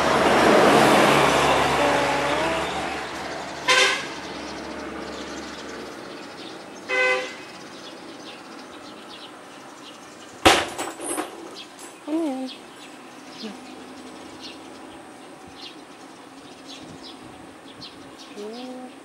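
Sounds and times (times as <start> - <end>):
passing traffic: 0.0 - 19.0
vehicle horn toots: 3.7 - 4.2, 6.9 - 7.5.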